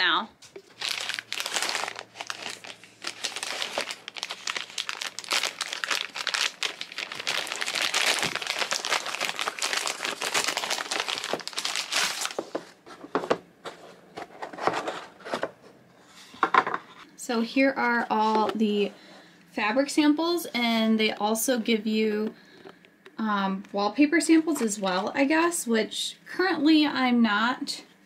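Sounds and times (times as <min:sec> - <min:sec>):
plastic mailer crinkling: 0:00.4 - 0:12.8.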